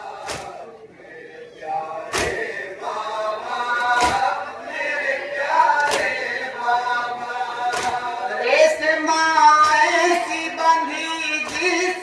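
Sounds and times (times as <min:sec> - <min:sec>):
men chanting a lament: 0:00.0 - 0:12.0
chest beating in unison: 0:00.1 - 0:00.7, 0:02.0 - 0:02.7, 0:03.8 - 0:04.5, 0:07.5 - 0:08.2.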